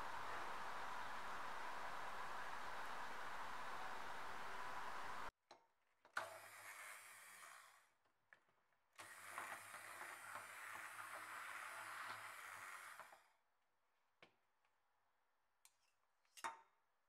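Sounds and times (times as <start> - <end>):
immersion blender motor whirring: 0.0 - 5.3
steady hiss: 0.0 - 5.3.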